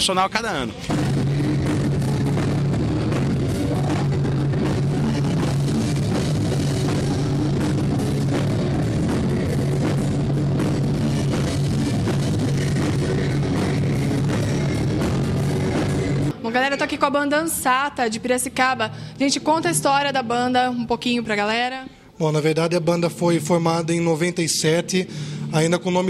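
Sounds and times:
rock band playing: 0.8 - 16.3.

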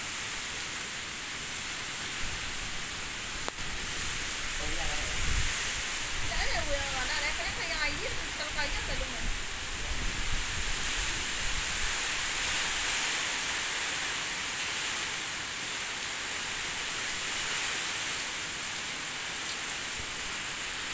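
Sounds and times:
wind gusts: 0.0 - 15.4
pouring rain: 0.0 - 20.9.

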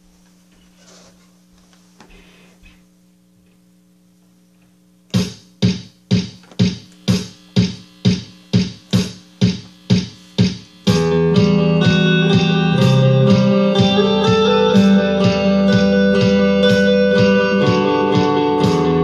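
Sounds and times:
guitar amplifier hum: 0.0 - 19.0
amplified electric guitar: 6.4 - 19.0.

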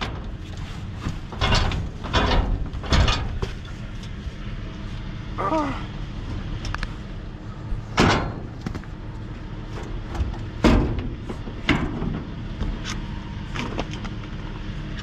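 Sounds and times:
loud clunks: 1.0 - 3.6, 7.9 - 8.9, 10.0 - 12.4.

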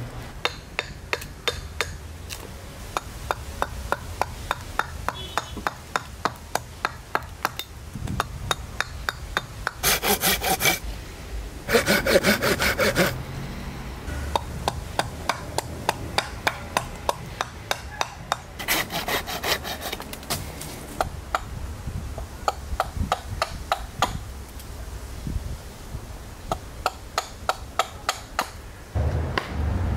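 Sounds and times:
hatchet striking wood: 0.4 - 2.0, 3.0 - 10.8, 14.3 - 19.8, 26.8 - 28.6.

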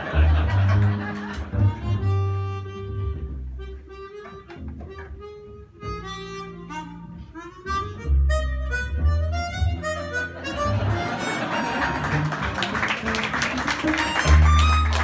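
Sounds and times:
walking double bass: 0.0 - 15.0
harmonica melody: 1.0 - 15.0
applause: 11.5 - 15.0.

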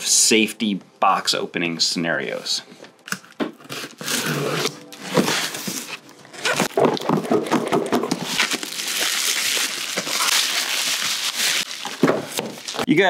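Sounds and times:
packing tape being slit: 3.0 - 12.9
cardboard flaps pulled open: 3.6 - 8.6
bubble wrap rustling: 3.6 - 13.0.

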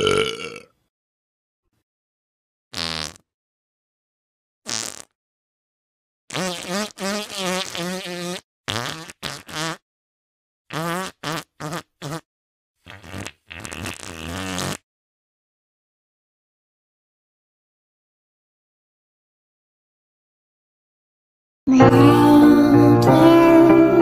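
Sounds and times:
fart sound effects: 2.7 - 3.2, 4.7 - 5.2, 6.3 - 9.8, 10.7 - 12.2, 12.9 - 14.8.

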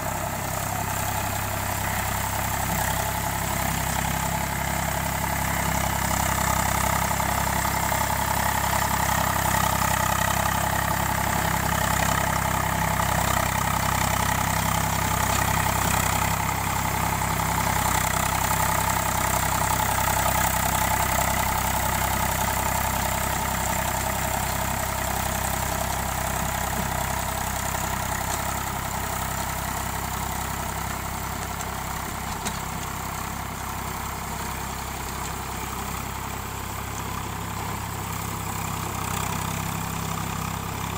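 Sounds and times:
tractor diesel engine running: 0.0 - 40.9.

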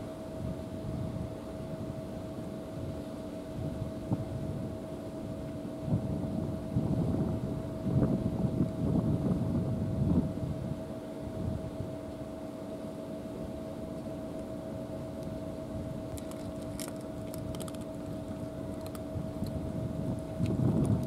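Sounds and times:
steady mechanical hum: 0.0 - 21.0
cats crunching dry food: 16.1 - 19.6.

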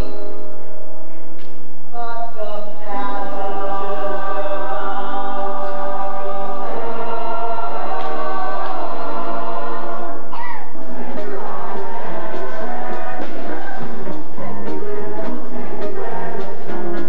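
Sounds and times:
chorus of young voices singing: 2.8 - 17.0.

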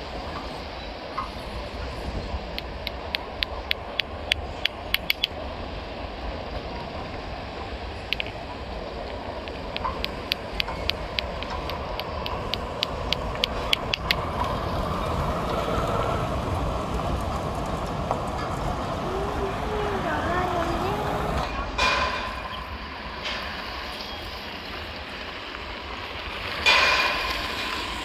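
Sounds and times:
traffic noise: 0.0 - 28.0
sharp rapid clicks: 2.6 - 5.4, 9.5 - 14.5.

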